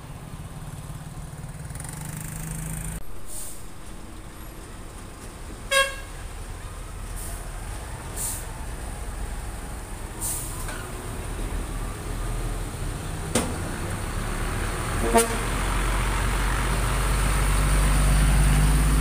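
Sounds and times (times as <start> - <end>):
truck diesel engine: 0.0 - 19.0
truck horn toot: 5.7 - 6.2, 15.0 - 15.7
sharp clunk: 13.3 - 13.6.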